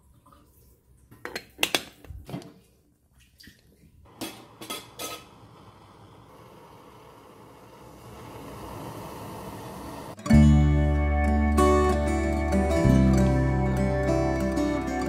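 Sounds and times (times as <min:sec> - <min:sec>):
faint steady hiss: 0:04.0 - 0:10.2.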